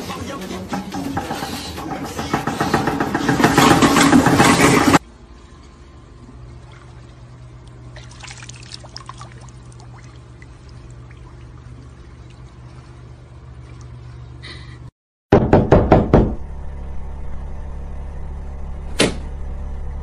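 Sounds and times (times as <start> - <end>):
steady low hum: 5.0 - 14.9, 16.0 - 20.0
dog splashing in water: 8.0 - 12.7.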